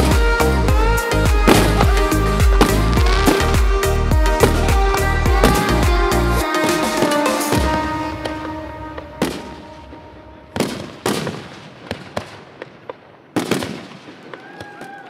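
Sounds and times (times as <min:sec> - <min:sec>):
background music: 0:00.0 - 0:11.0
fireworks bursting with sharp bangs: 0:01.3 - 0:15.0.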